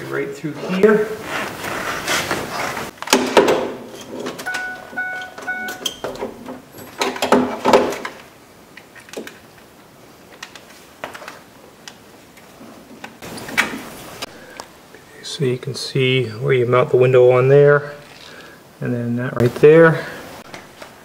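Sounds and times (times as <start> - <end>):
short electronic beeps: 4.5 - 6.2.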